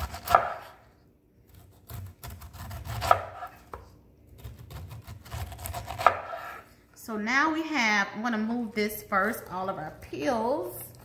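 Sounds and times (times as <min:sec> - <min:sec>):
knife slicing pineapple rind: 0:00.0 - 0:06.7.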